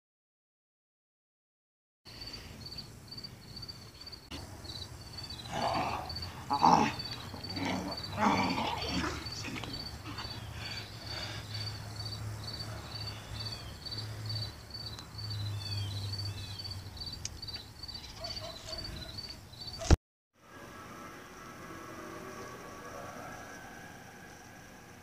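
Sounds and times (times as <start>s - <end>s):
insects chirping: 2.1s - 20.0s, 20.7s - 25.0s
faint falling calls: 2.2s - 20.0s.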